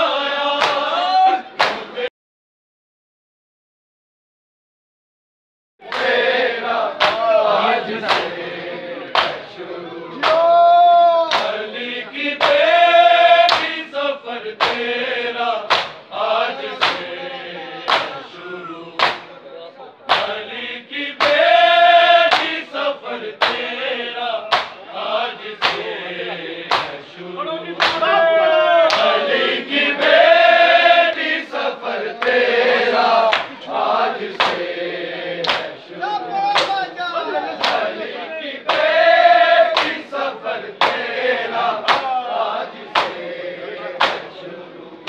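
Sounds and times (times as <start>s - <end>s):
men chanting a lament: 0.0s - 2.1s, 5.8s - 45.0s
palms slapping chests: 7.0s - 7.3s, 8.0s - 8.4s, 9.1s - 9.5s, 10.2s - 10.4s, 11.3s - 11.6s, 13.5s - 13.8s, 14.6s - 14.9s, 15.7s - 16.0s, 16.8s - 17.1s, 17.9s - 18.2s, 19.0s - 19.3s, 20.1s - 20.4s, 22.3s - 22.6s, 24.5s - 24.8s, 25.6s - 25.9s, 26.7s - 27.0s, 27.8s - 28.1s, 34.3s - 34.7s, 35.4s - 35.8s, 36.5s - 36.8s, 37.6s - 37.9s, 39.7s - 40.0s, 40.8s - 41.1s, 41.8s - 42.2s, 42.9s - 43.2s, 44.0s - 44.3s.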